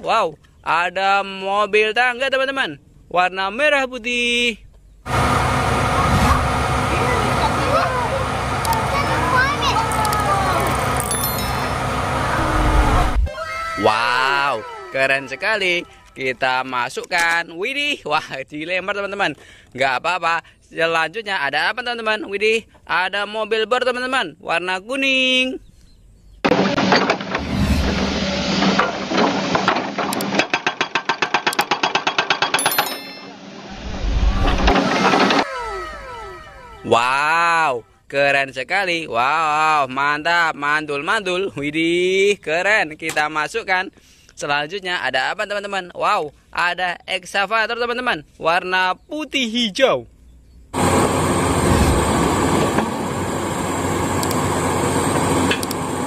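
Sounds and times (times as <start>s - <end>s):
excavator engine rumbling: 5.1s - 13.3s, 50.8s - 56.0s
hydraulic breaker hammering: 26.4s - 33.5s.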